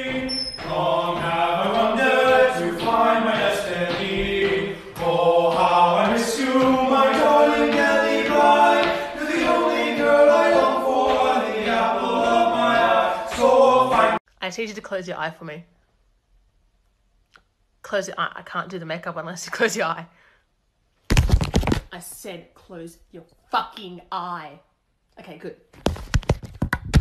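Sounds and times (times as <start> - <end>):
unaccompanied choir singing: 0.0 - 14.2.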